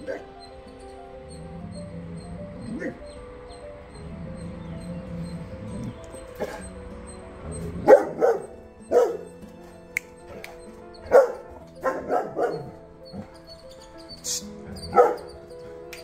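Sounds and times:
dog barking aggressively: 0.0s - 0.4s, 4.0s - 6.8s, 7.4s - 9.4s, 10.3s - 13.4s, 14.4s - 15.6s
background music: 0.0s - 16.0s.

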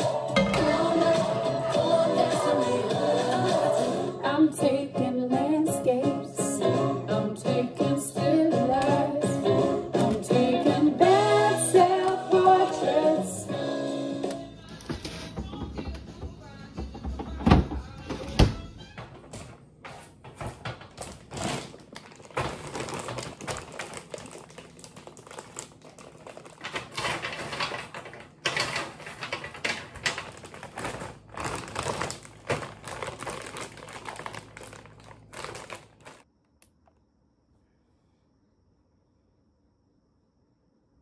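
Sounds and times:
dried vegetable pieces clattering: 20.6s - 36.2s.

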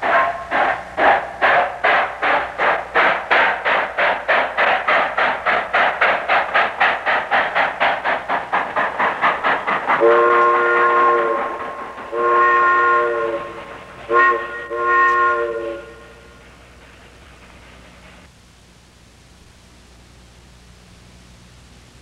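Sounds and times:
steam locomotive chuffing: 0.0s - 18.3s
steam whistle blasts: 10.0s - 16.4s.

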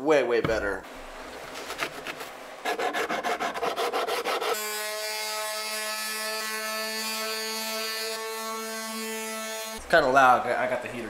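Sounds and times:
rubbing on wooden cutting board: 1.4s - 4.6s.

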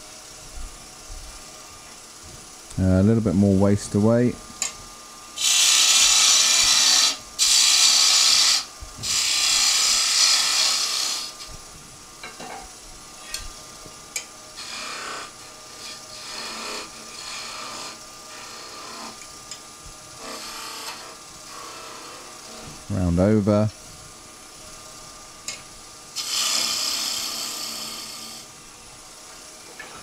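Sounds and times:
lathe humming: 1.6s - 12.2s, 13.0s - 30.0s
lathe tool cutting wood: 5.4s - 11.5s, 14.5s - 19.2s, 20.2s - 22.8s, 26.2s - 28.5s.

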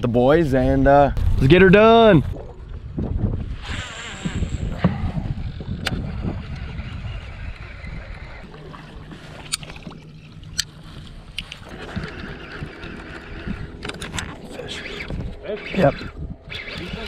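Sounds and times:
choppy water around boat: 0.0s - 17.0s
wind: 0.0s - 17.0s
low steady hum: 7.5s - 17.0s.

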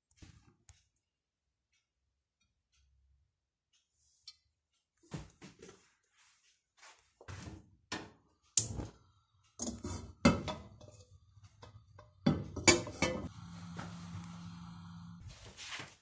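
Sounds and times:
metal pot clunking on stove grate: 9.6s - 13.3s.

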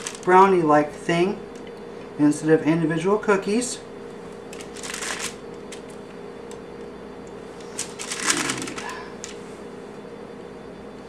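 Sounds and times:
wax paper crinkling: 0.0s - 0.3s, 4.5s - 6.0s, 7.5s - 9.4s.

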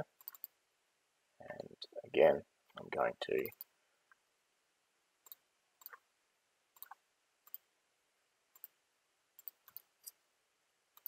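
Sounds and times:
faint computer mouse clicks: 0.2s - 0.6s, 9.4s - 10.2s.

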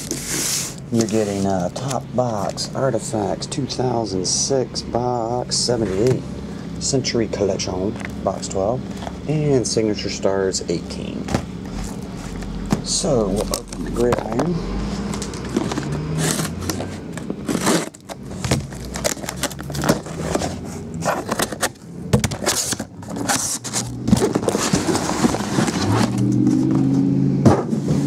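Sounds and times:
cardboard boxes scraping and sliding: 0.0s - 1.6s, 11.7s - 21.7s, 22.4s - 28.0s
cardboard crackles and knocks: 11.2s - 26.8s.

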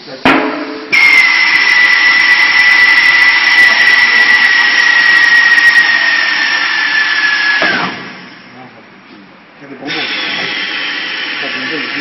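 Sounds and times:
compressed air hissing: 0.8s - 8.5s, 9.9s - 12.0s
steady whistle dropping in pitch: 0.9s - 8.3s.

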